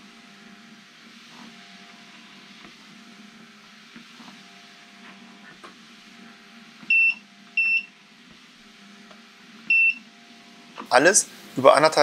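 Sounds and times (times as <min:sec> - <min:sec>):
treadmill motor hum: 0:00.0 - 0:12.0
high treadmill beep: 0:06.9 - 0:08.0, 0:09.7 - 0:10.1.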